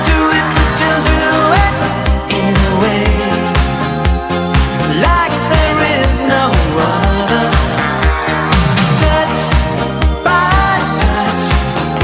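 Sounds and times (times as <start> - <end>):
upbeat pop music: 0.0 - 12.0.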